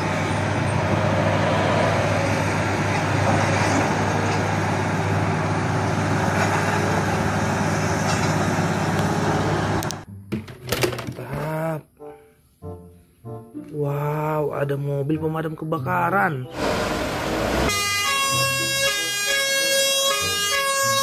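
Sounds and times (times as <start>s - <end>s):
diesel truck engine droning: 0.0s - 10.1s, 16.4s - 21.0s.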